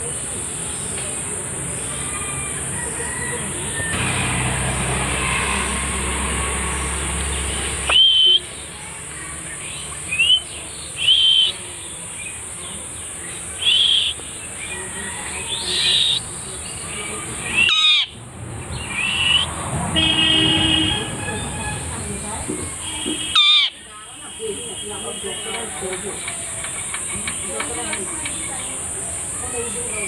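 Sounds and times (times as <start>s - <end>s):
parakeet giving sharp calls: 13.6s - 14.2s, 17.5s - 18.2s, 23.2s - 23.8s.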